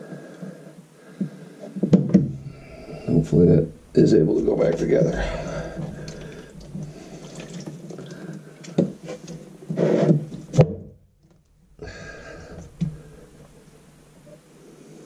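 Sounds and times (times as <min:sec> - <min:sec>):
metal drain pipes knocking: 0:02.0 - 0:08.1, 0:10.5 - 0:14.3
water dripping into plastic tub: 0:04.9 - 0:08.9.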